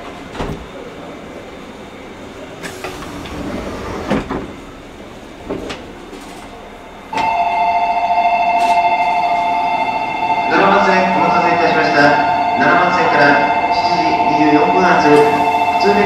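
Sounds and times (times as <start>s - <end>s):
warbling electronic departure signal: 7.1s - 16.0s.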